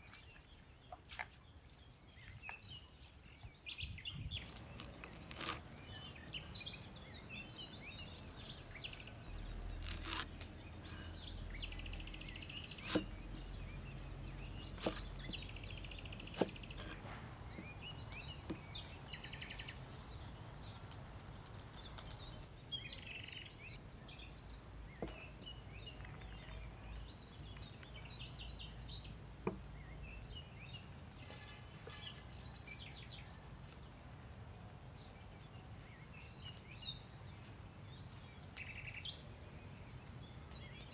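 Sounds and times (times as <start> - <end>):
birds chirping: 0.0 - 40.9
cleaver striking wooden chopping block: 12.8 - 13.1, 14.8 - 15.0.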